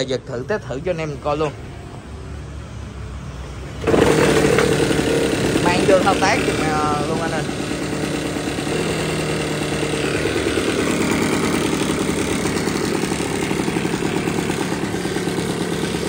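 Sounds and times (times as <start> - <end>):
leaf blower engine idling: 3.8 - 16.0.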